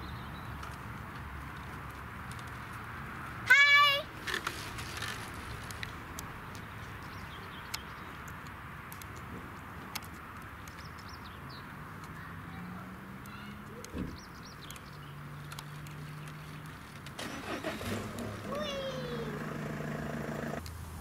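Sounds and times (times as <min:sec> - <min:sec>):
small birds chirping: 0:00.0 - 0:01.0, 0:05.9 - 0:17.1.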